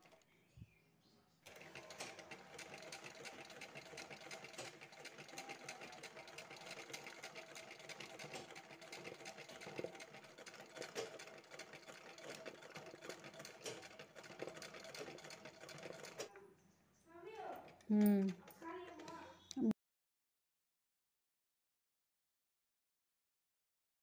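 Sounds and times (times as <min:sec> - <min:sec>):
sewing machine stitching: 0:00.0 - 0:00.2, 0:01.4 - 0:16.4, 0:17.4 - 0:19.3.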